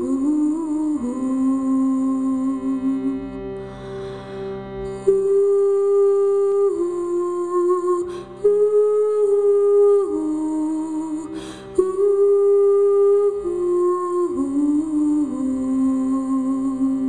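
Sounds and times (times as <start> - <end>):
breath drawn: 3.5 - 5.0.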